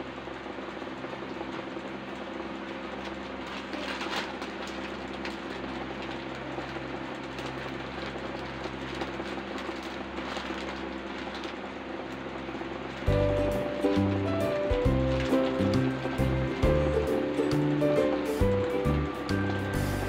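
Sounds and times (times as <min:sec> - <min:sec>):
steady machine hum: 0:00.0 - 0:20.0
constant hiss: 0:13.0 - 0:20.0.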